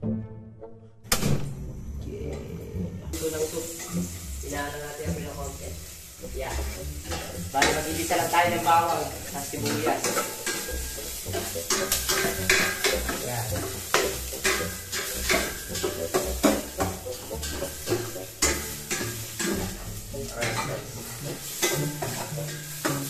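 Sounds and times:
garlic and onion sizzling: 0:01.2 - 0:23.0
metal ladle scraping a pot: 0:05.5 - 0:23.0.

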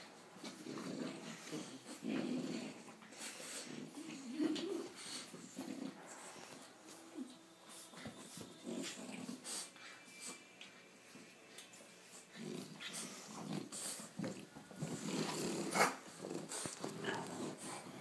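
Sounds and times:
dogs breathing: 0:00.0 - 0:06.7, 0:12.0 - 0:18.0
dogs growling: 0:00.0 - 0:09.8, 0:12.1 - 0:18.0.

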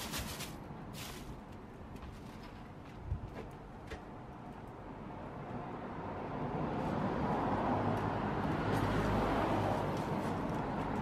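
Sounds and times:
car passing by: 0:05.6 - 0:11.0.

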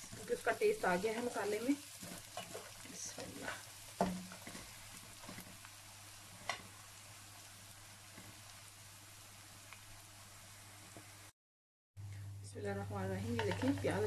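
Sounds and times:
spatula scraping and knocking pan: 0:00.0 - 0:05.7, 0:13.3 - 0:14.0
onions sizzling in oil: 0:00.0 - 0:11.3, 0:12.6 - 0:14.0.

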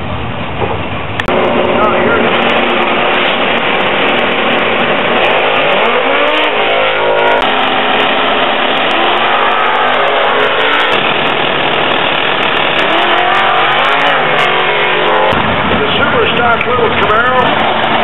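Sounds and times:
drag race car engines revving: 0:00.0 - 0:18.0.

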